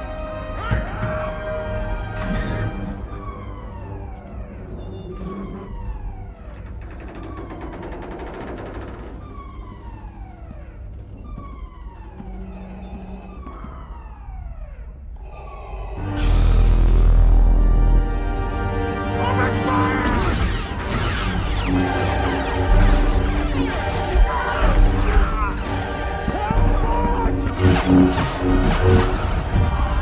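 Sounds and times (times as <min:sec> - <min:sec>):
alarm with falling whoop: 0:11.2 - 0:16.4.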